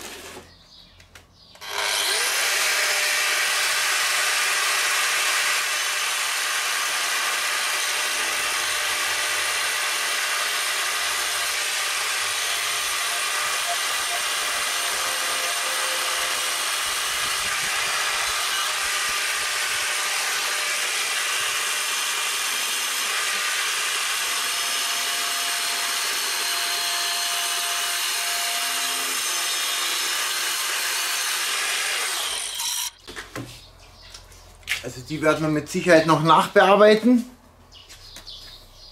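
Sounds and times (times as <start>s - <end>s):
angle grinder cutting stone: 0.0s - 0.5s, 1.6s - 33.0s.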